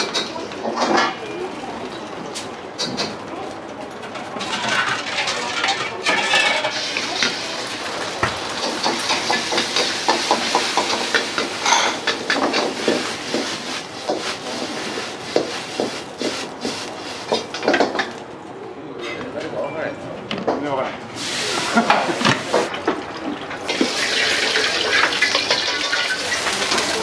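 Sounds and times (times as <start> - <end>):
food frying: 4.7 - 18.1, 21.2 - 27.0
gas burner rushing: 21.2 - 22.8, 23.4 - 27.0.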